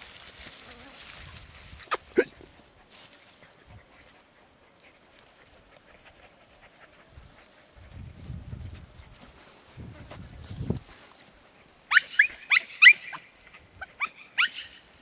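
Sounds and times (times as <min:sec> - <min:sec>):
dog yelping: 0:11.9 - 0:14.8.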